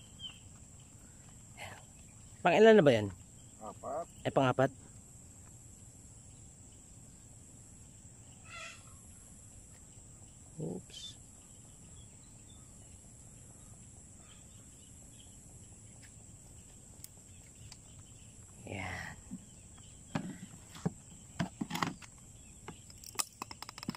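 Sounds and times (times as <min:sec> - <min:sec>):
steady high-pitched hum: 0:00.0 - 0:23.4
short animal calls: 0:03.6 - 0:04.2, 0:08.4 - 0:09.0.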